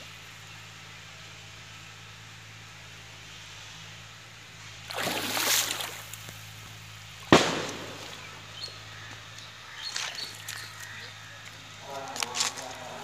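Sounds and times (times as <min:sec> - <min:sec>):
steady low hum: 0:00.0 - 0:13.0
water sloshing and splashing: 0:04.9 - 0:06.4.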